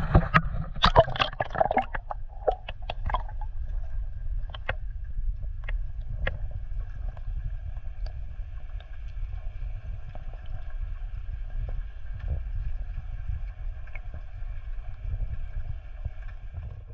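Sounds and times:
underwater water rumble: 0.0s - 16.9s.

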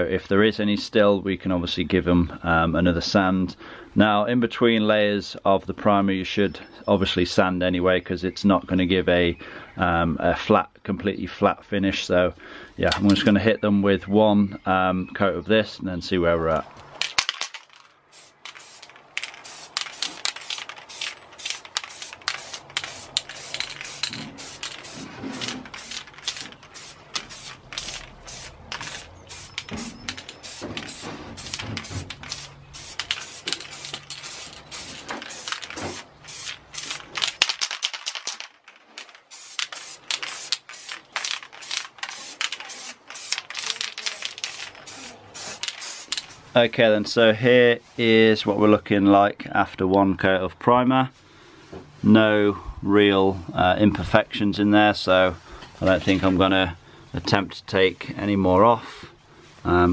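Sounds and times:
aerosol can spraying: 18.1s - 37.1s, 39.3s - 46.4s.

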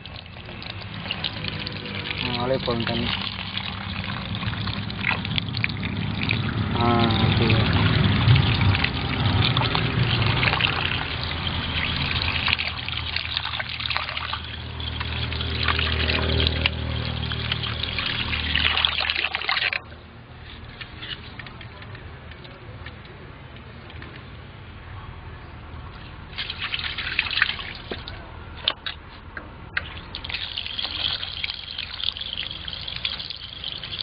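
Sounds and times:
water pouring into metal bowl: 0.0s - 19.8s, 26.3s - 28.2s, 29.8s - 34.0s
water sloshing and dripping: 0.0s - 23.0s, 25.9s - 29.1s, 29.7s - 34.0s.

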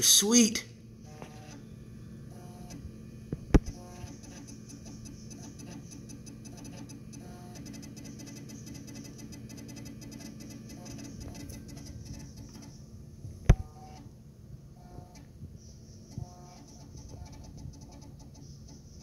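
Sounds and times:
computer hum: 0.0s - 19.0s
floppy drive sharp click: 2.4s - 12.8s
floppy drive head ticking: 3.5s - 12.8s.

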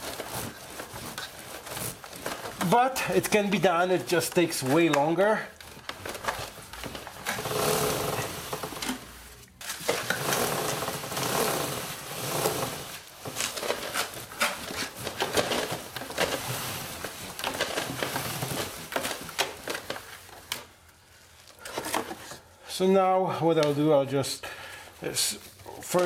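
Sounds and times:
rag rubbing on chain: 7.3s - 8.8s.

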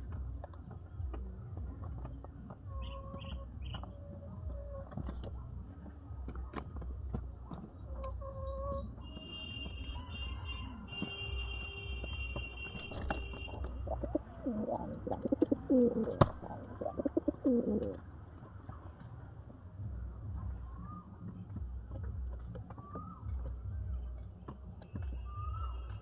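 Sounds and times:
pigeon cooing: 13.0s - 18.0s.

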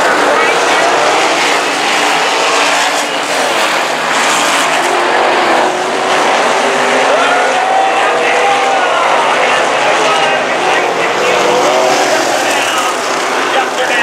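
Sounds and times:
race car engines roaring: 0.0s - 14.0s.

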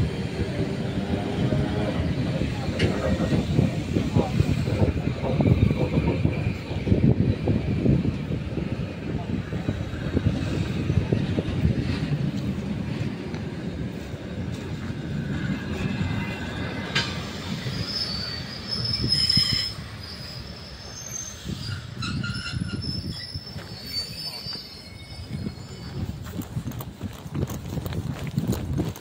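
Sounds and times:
train rumbling: 0.0s - 29.0s
train wheels squealing: 15.4s - 26.6s.

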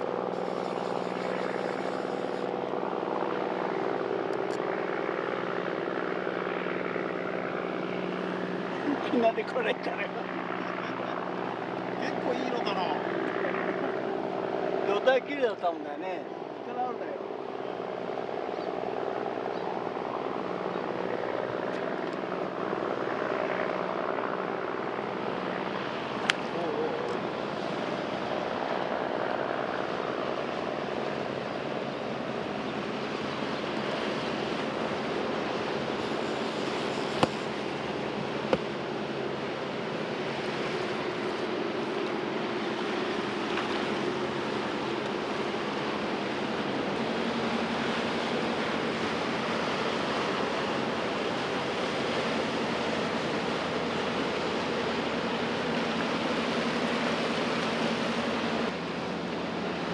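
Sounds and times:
faint motor hum: 0.0s - 59.9s
wind: 0.0s - 59.9s
choppy sea water: 17.2s - 59.9s.

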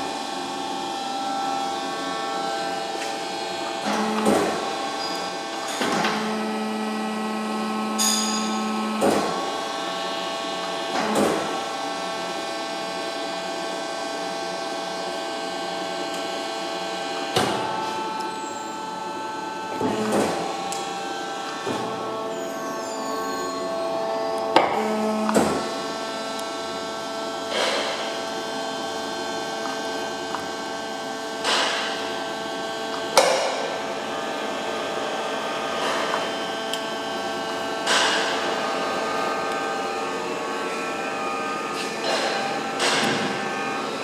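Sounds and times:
machine humming: 0.0s - 44.0s.

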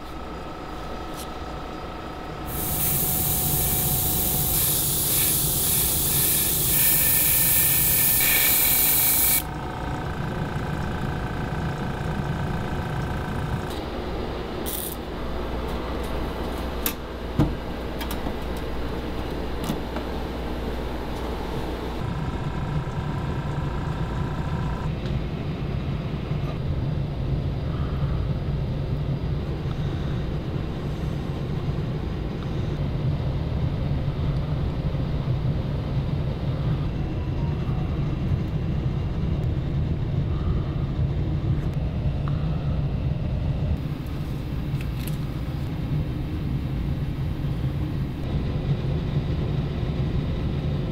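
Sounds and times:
low mechanical hum: 0.0s - 50.9s.

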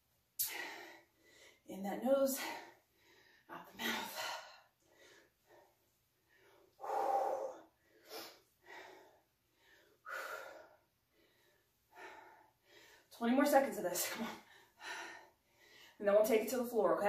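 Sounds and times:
woman breathing hard: 0.4s - 1.7s, 2.4s - 13.1s, 14.2s - 16.0s.

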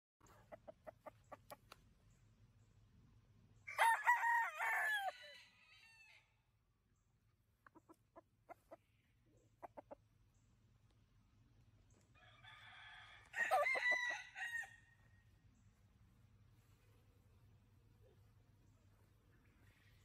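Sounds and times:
rooster clucking: 0.2s - 1.6s, 9.5s - 10.0s
rooster crowing: 3.7s - 6.3s, 12.2s - 15.0s.

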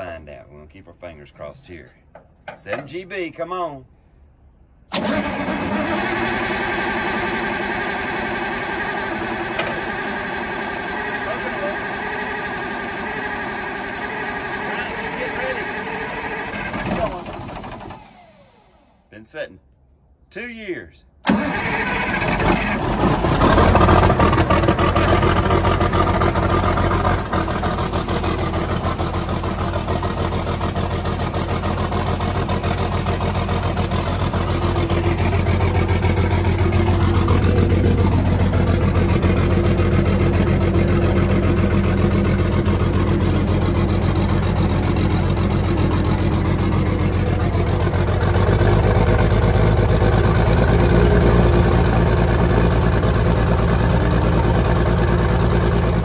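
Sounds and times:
diesel engine starting and running: 4.2s - 19.1s, 21.2s - 56.0s.

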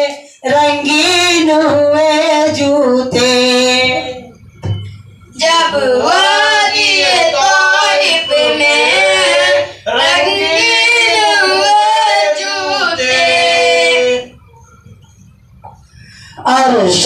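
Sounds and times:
boy singing into a microphone: 0.0s - 4.3s, 5.4s - 14.3s.

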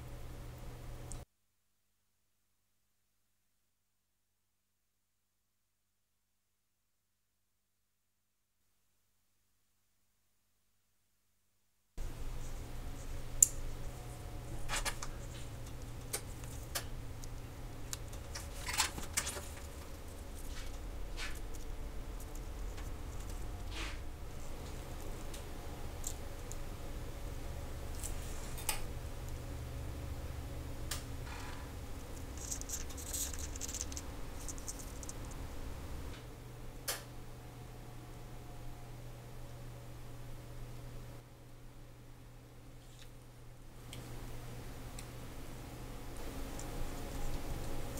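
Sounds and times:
low steady hum: 0.0s - 1.3s, 12.0s - 47.9s
watch parts clicking and scratching: 12.4s - 26.6s, 31.9s - 36.1s.

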